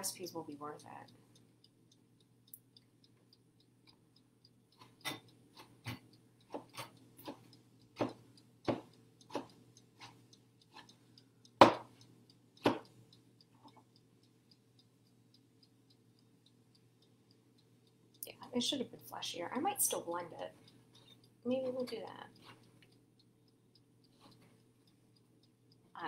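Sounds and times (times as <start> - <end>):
faint steady ticking: 0.0 - 26.0
knife chopping on cutting board: 8.0 - 9.5, 11.6 - 11.9, 12.6 - 12.8.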